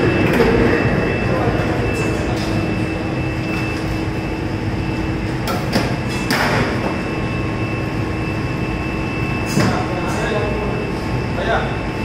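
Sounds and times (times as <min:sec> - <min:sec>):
processing machinery droning: 0:00.0 - 0:12.0.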